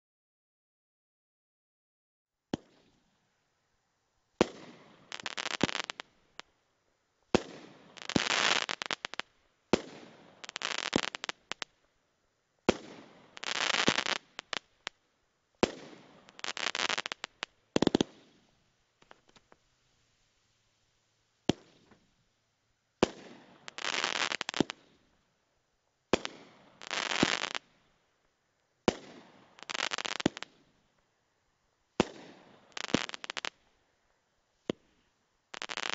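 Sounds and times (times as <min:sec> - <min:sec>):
crackling aerial firework bursts: 0:04.4 - 0:06.1, 0:07.4 - 0:11.7, 0:12.7 - 0:15.0, 0:15.6 - 0:19.6, 0:23.0 - 0:25.0, 0:26.2 - 0:27.7, 0:28.9 - 0:30.6, 0:32.0 - 0:33.6, 0:35.5 - 0:35.9.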